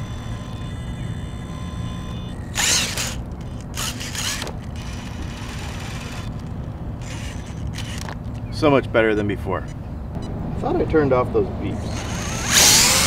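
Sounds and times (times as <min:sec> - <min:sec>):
electric motor whine: 0:00.0 - 0:08.2, 0:11.8 - 0:13.0
drivetrain gear noise: 0:00.0 - 0:10.6, 0:11.6 - 0:13.0.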